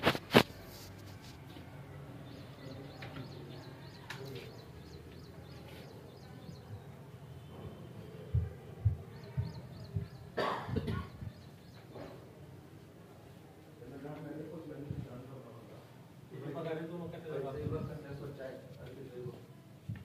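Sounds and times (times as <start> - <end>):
faint birds chirping: 0.5 - 15.9.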